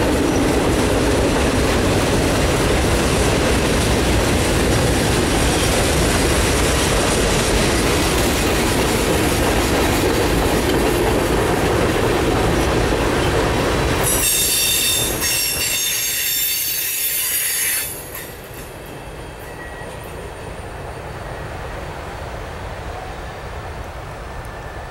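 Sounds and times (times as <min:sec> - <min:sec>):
freight train rumbling on rails: 0:00.0 - 0:24.9
high-pitched wheel squeal: 0:14.1 - 0:18.3.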